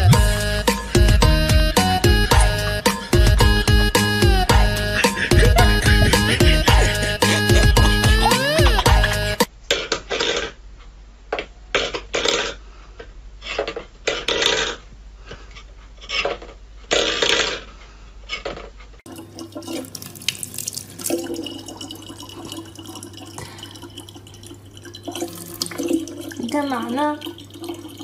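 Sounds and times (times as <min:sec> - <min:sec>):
tap water running into plastic bottle: 0:19.1 - 0:28.0.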